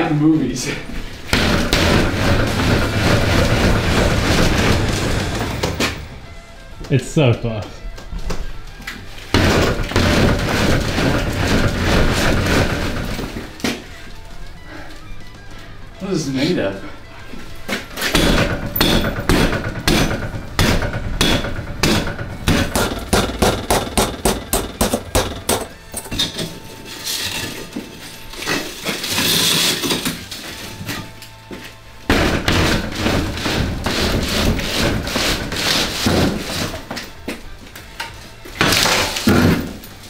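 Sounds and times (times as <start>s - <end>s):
metal bar striking glass: 18.0s - 26.6s
glass crunching: 24.4s - 31.2s, 38.0s - 40.0s.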